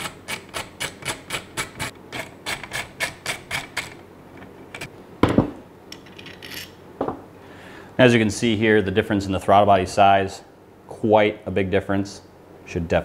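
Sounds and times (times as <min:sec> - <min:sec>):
heavier knocks: 0:05.2 - 0:05.6.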